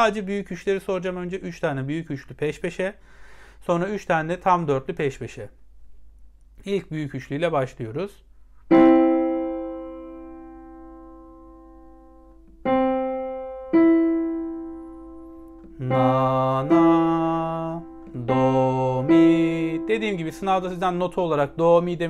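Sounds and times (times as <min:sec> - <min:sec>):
digital piano notes: 0:08.7 - 0:22.0
man singing na: 0:15.8 - 0:22.0.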